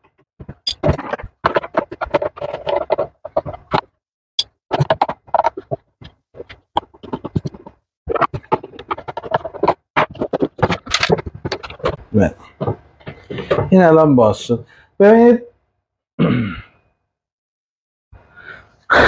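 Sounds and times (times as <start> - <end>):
plastic and metal parts rattling: 0.4 - 4.0, 4.7 - 13.8.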